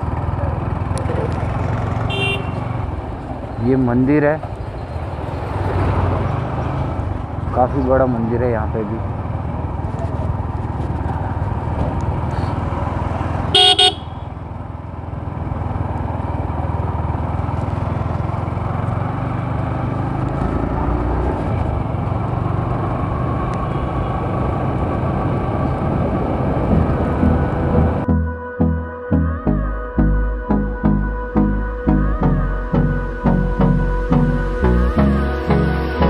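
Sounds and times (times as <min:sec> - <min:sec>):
motorcycle engine rumble: 0:00.0 - 0:28.1
horn honk: 0:02.0 - 0:02.9, 0:13.5 - 0:14.4.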